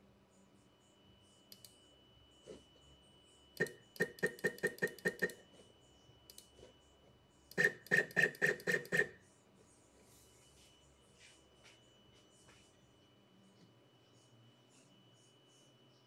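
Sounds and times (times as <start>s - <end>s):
stepper motors buzzing: 3.6s - 5.7s, 7.5s - 9.2s.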